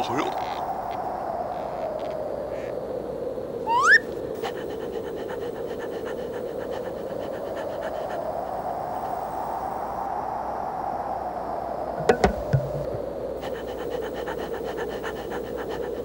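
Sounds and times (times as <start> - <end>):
airy hiss: 0.0 - 16.0
rising whistle-like squeal: 3.7 - 4.0.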